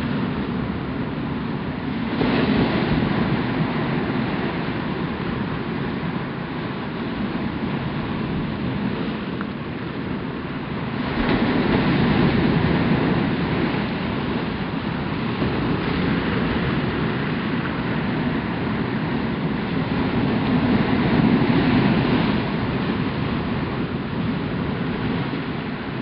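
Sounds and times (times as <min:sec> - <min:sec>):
surf breaking over rock ledges: 0:10.9 - 0:26.0.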